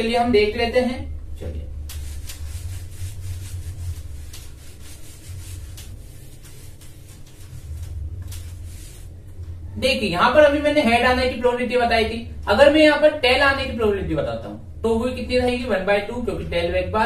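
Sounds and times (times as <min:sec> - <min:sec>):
steady low hum: 0:00.0 - 0:17.0
eraser scrubbing whiteboard: 0:01.8 - 0:09.3.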